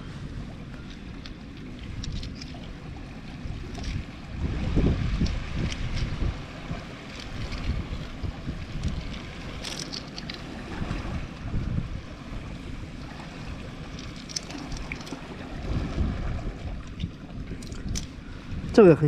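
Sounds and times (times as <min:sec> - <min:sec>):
surf on rocky shore: 0:00.0 - 0:19.0
wind buffeting microphone: 0:00.0 - 0:19.0.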